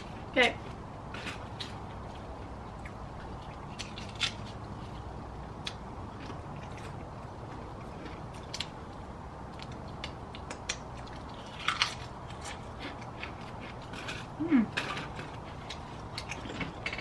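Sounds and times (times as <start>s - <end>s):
crisps crunching: 2.8s - 5.0s, 5.6s - 14.3s.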